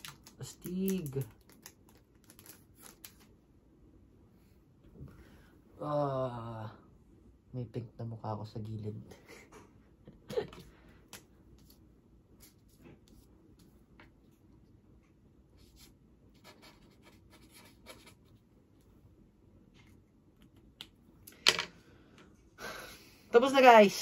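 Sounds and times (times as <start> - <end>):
pen scratching on paper: 15.6 - 18.4.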